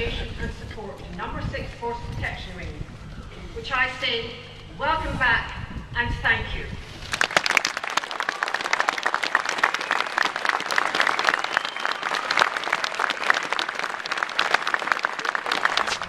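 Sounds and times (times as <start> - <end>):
crowd applauding: 7.1 - 16.0.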